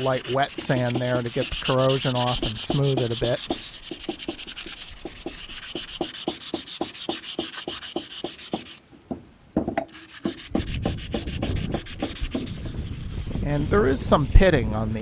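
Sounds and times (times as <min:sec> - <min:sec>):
hand sanding metal: 0:00.0 - 0:08.8, 0:09.9 - 0:14.6
knock: 0:09.1 - 0:09.9.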